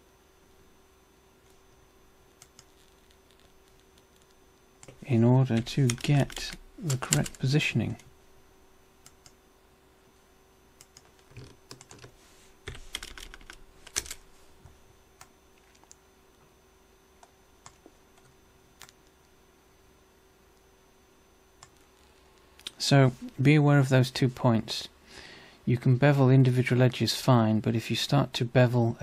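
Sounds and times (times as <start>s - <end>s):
faint steady hum: 0.0s - 29.0s
keyboard keys clicking: 5.6s - 7.5s, 10.8s - 12.1s, 12.7s - 14.2s.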